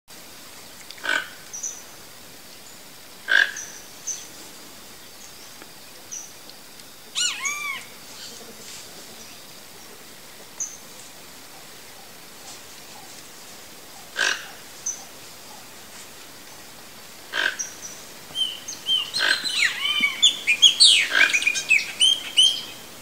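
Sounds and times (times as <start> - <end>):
toucan croaks: 1.0 - 1.5, 3.2 - 3.8, 7.1 - 8.4, 14.0 - 15.7, 17.3 - 22.8
high bird chirps: 7.2 - 7.8, 18.3 - 22.8.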